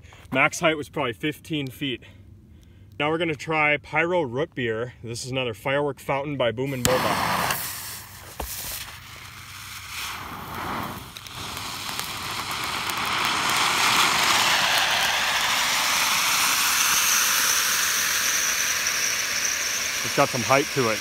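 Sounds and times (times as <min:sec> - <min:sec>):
firework fountain hissing: 0:06.7 - 0:21.0
fuse burning: 0:06.7 - 0:21.0.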